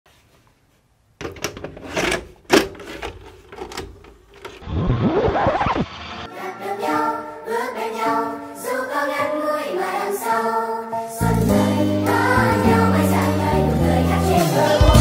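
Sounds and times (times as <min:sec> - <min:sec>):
vcr mechanism clicking and clunking: 0:01.2 - 0:04.6
wavering tape playback noise: 0:03.6 - 0:06.3.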